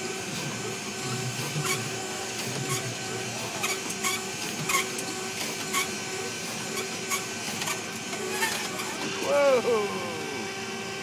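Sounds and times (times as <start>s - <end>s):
machinery whirring: 0.0s - 11.0s.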